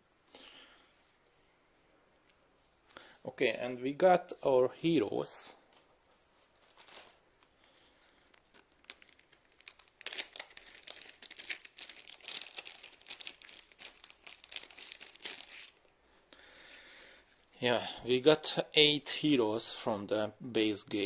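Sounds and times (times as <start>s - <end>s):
plastic packaging crinkling: 6.4s - 15.9s.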